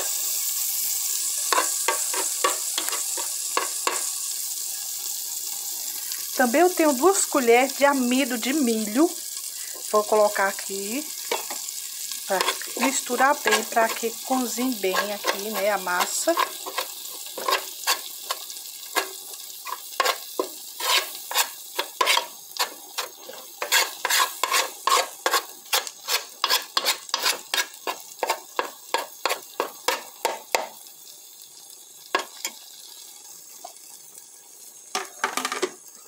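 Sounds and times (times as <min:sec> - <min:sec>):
margarine sizzling: 0:00.0 - 0:36.0
spoon scraping metal pot: 0:01.5 - 0:04.0, 0:11.3 - 0:11.6, 0:12.3 - 0:30.4.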